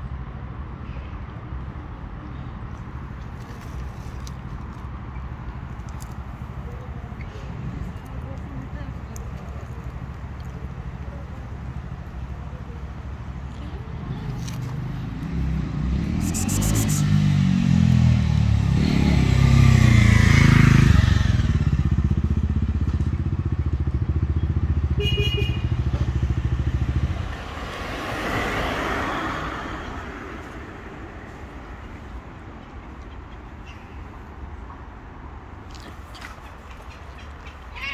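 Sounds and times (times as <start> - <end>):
vehicle engine running: 9.6 - 17.2
passing vehicle whoosh: 14.8 - 22.0, 26.0 - 31.6.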